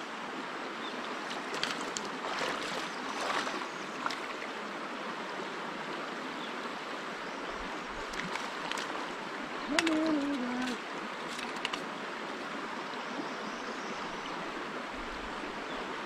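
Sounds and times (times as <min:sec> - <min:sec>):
stream rushing over stones: 0:00.0 - 0:16.0
faint clicks: 0:09.7 - 0:11.9.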